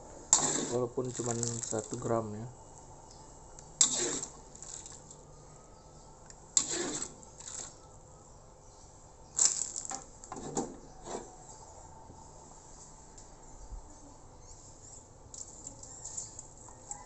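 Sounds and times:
metal ladle scraping a wok: 0.3 - 0.9, 3.8 - 5.0, 6.6 - 7.8, 10.4 - 11.4.

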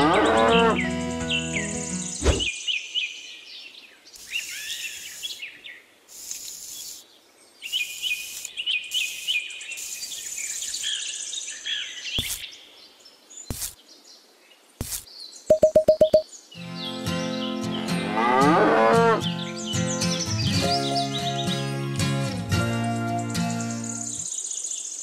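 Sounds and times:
birds chirping: 0.0 - 2.9, 4.2 - 12.7
rake scraping through sand: 12.2 - 12.5, 13.5 - 13.8, 14.8 - 15.1.

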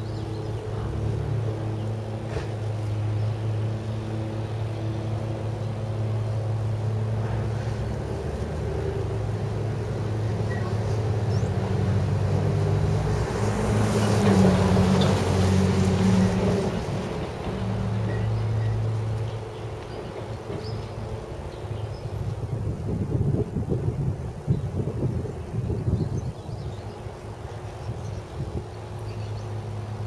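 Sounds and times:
wind buffeting microphone: 6.0 - 30.0.

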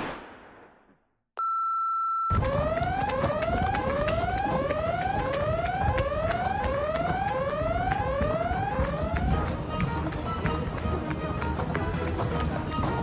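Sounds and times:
short electronic beep: 1.4 - 2.4.

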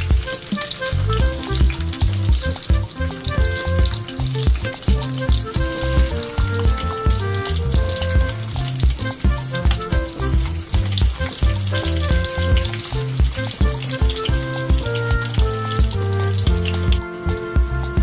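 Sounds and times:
background music with beat: 0.0 - 18.0.

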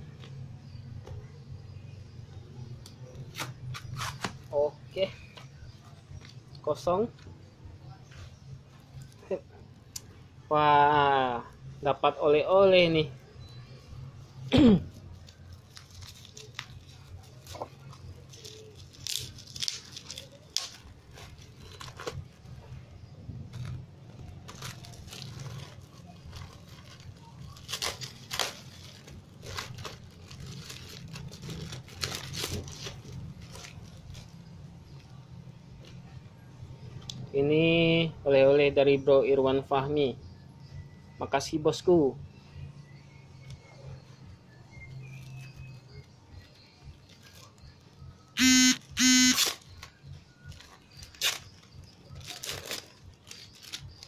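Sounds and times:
plastic wrapping crinkling and tearing: 14.8 - 35.2, 45.1 - 47.9, 49.4 - 54.0
short loud buzzes: 48.4 - 49.4.

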